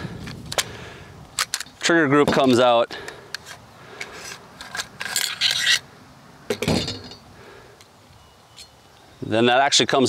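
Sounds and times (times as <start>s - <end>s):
metal parts sliding and scraping: 3.3s - 5.9s.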